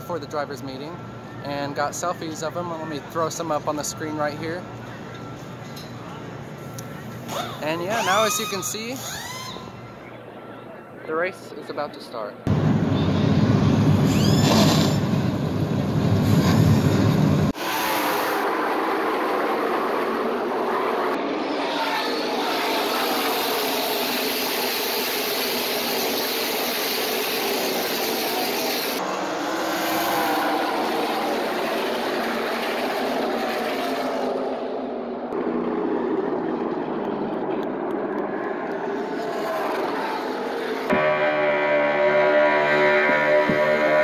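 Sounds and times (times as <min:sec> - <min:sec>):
racing truck engines passing: 0:27.3 - 0:40.9.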